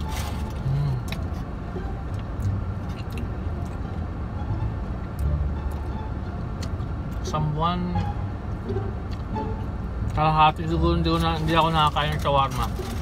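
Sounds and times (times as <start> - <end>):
car engine rumble from inside: 0.0 - 13.0
foil wrapper crinkling: 11.8 - 13.0.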